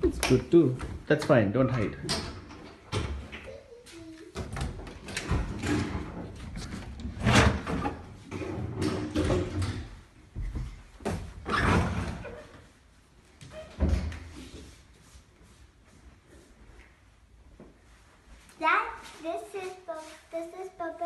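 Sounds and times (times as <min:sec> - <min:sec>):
closet doors opening and closing: 0:01.9 - 0:03.5, 0:04.3 - 0:12.7, 0:13.4 - 0:14.4.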